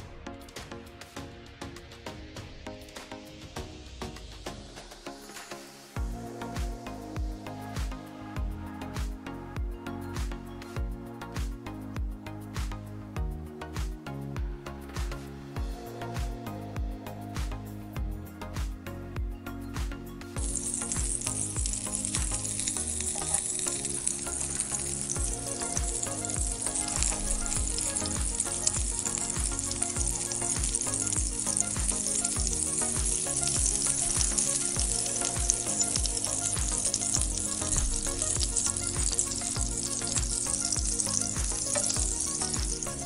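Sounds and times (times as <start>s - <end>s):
background music with beat: 0.0s - 43.0s
chillies sizzling in a pan: 20.4s - 43.0s.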